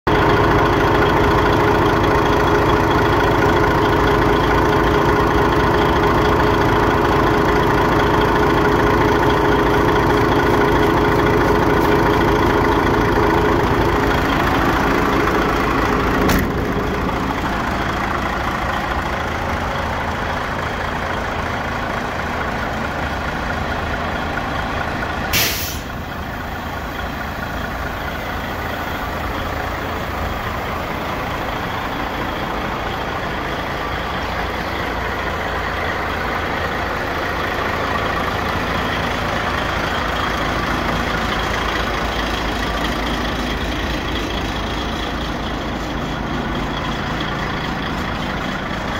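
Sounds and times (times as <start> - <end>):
diesel engine idling: 0.1 - 48.9
compressed air hiss: 25.3 - 26.0.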